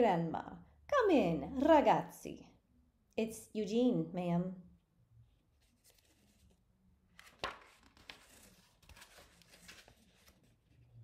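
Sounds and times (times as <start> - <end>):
paper page turning: 5.5 - 11.0.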